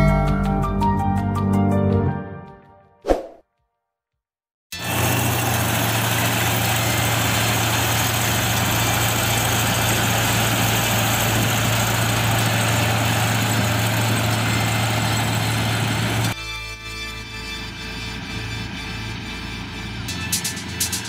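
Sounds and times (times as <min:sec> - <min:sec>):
combine harvester running: 0:04.8 - 0:16.4, 0:17.0 - 0:21.0.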